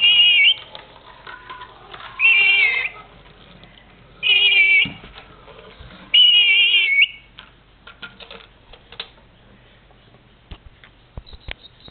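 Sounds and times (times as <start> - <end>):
parrot whistled squeals: 0.0 - 0.6, 6.2 - 7.2.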